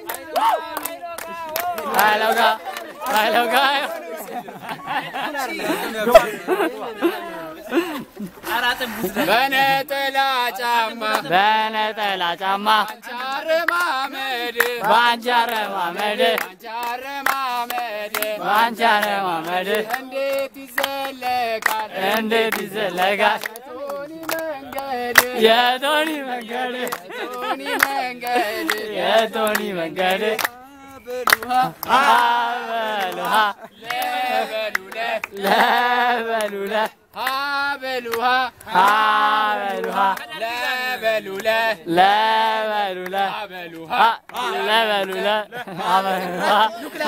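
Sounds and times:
hand claps: 0.0 - 4.8, 12.8 - 40.3, 43.0 - 45.4
men chanting: 0.0 - 47.0.

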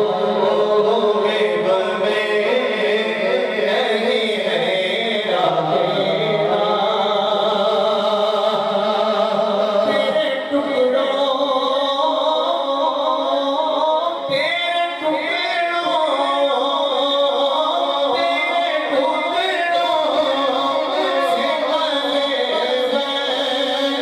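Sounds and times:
man singing unaccompanied: 0.0 - 24.0.

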